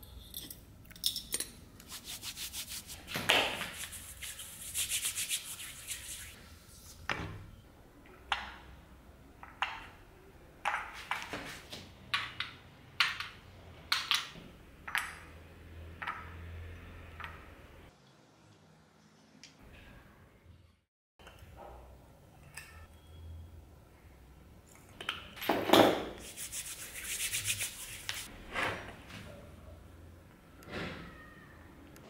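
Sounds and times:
palms rubbing together: 0:01.8 - 0:07.1, 0:26.2 - 0:28.3.

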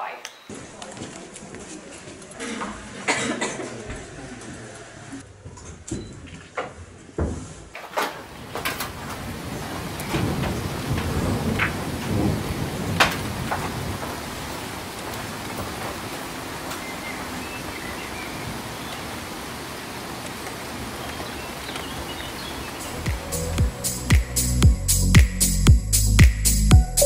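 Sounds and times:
rushing outdoor noise: 0:08.1 - 0:26.8.

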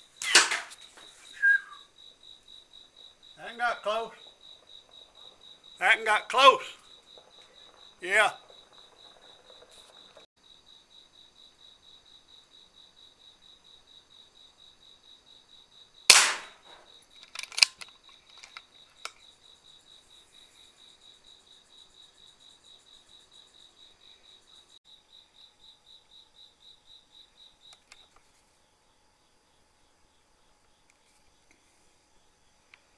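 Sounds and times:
crickets chirping: 0:00.0 - 0:32.9
air rifle shot: 0:00.2 - 0:00.8, 0:16.1 - 0:16.8
small sharp clicks: 0:16.1 - 0:19.2.

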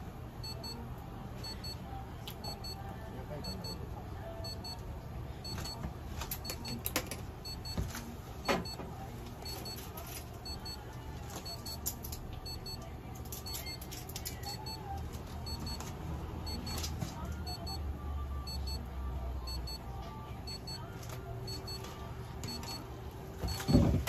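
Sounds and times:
electronic equipment beeping: 0:02.4 - 0:02.8, 0:03.4 - 0:03.8, 0:04.4 - 0:04.8, 0:05.4 - 0:05.8, 0:06.4 - 0:06.8, 0:07.4 - 0:07.8, 0:10.4 - 0:10.8, 0:11.4 - 0:11.8, 0:12.4 - 0:12.8, 0:16.4 - 0:16.8, 0:17.4 - 0:17.8, 0:18.4 - 0:18.8, 0:19.5 - 0:19.8, 0:20.5 - 0:20.8, 0:21.5 - 0:24.0.

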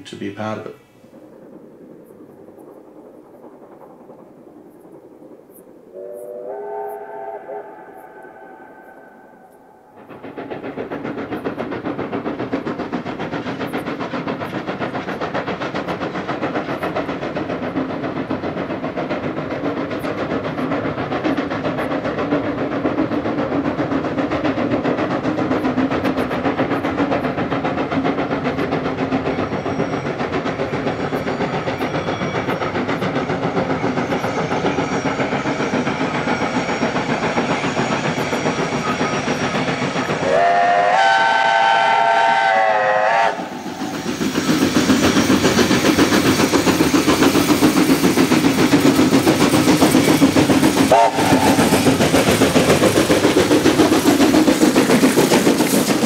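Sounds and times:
steam locomotive exhaust beating: 0:00.0 - 0:56.0
multi-tone steam whistle: 0:05.9 - 0:09.9, 0:40.2 - 0:44.0, 0:50.8 - 0:52.0.

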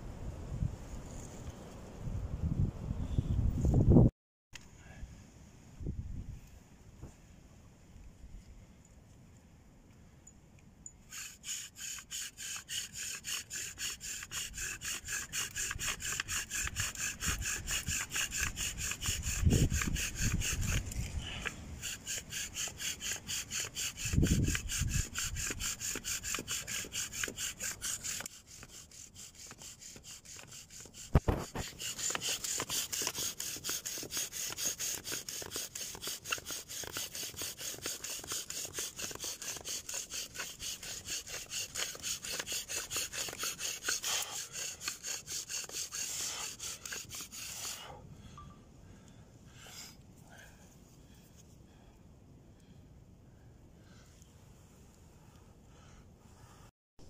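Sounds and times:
bow drill rasping: 0:11.1 - 0:48.0.

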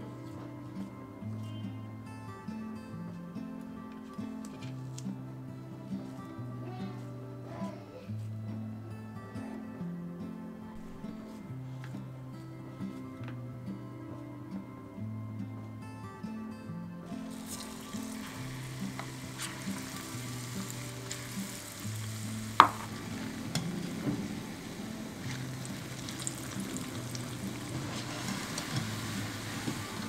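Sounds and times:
food deep-frying in hot oil: 0:17.3 - 0:30.0.

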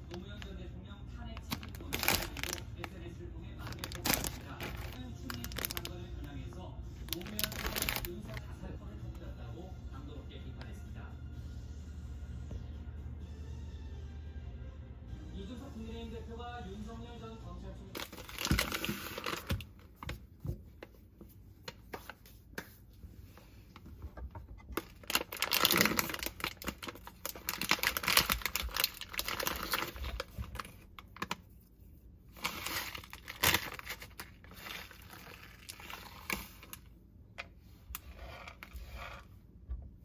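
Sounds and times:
plastic wrapper crinkling: 0:01.3 - 0:06.3, 0:07.0 - 0:08.6, 0:18.0 - 0:20.1, 0:24.8 - 0:31.6, 0:32.3 - 0:36.9.

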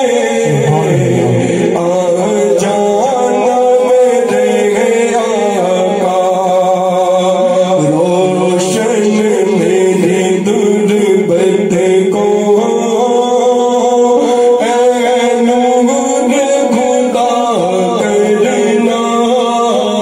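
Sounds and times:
man singing into a microphone: 0:00.0 - 0:20.0.

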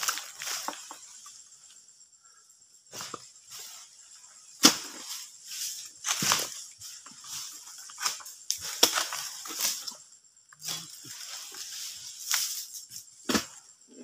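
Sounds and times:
fronds rustling: 0:00.0 - 0:01.9, 0:02.9 - 0:13.6
blade chopping and scraping fronds: 0:04.6 - 0:10.0, 0:10.6 - 0:13.6.

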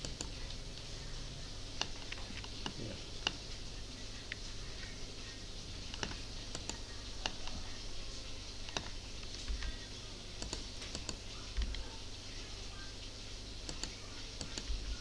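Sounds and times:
faint low hum: 0:00.0 - 0:15.0
mouse and keyboard clicks: 0:05.9 - 0:07.6, 0:10.4 - 0:11.8, 0:13.7 - 0:14.8.

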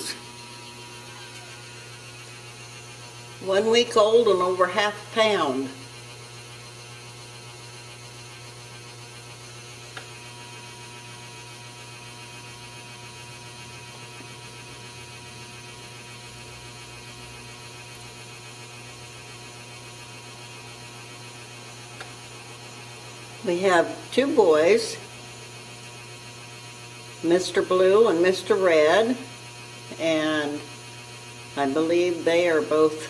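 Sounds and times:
low electrical hum: 0:00.0 - 0:33.0
small click: 0:09.9 - 0:10.1, 0:22.0 - 0:22.2.

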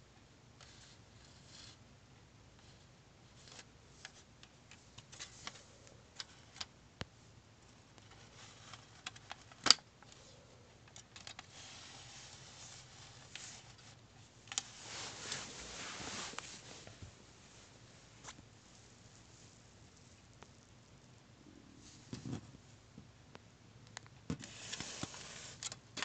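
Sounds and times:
rubbing and scraping: 0:11.5 - 0:18.4.

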